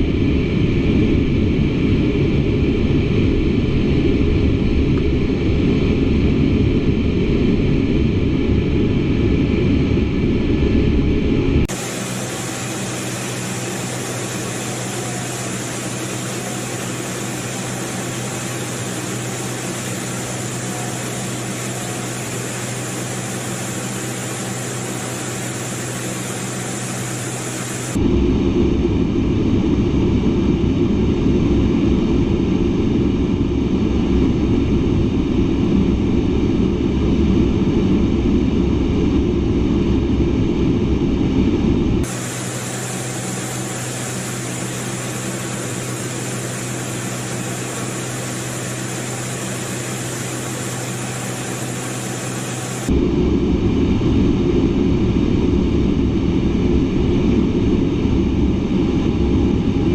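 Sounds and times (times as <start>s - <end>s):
deep jet rumble: 0.0s - 59.9s
jet cockpit hiss with high whine: 11.7s - 28.0s, 42.0s - 52.9s.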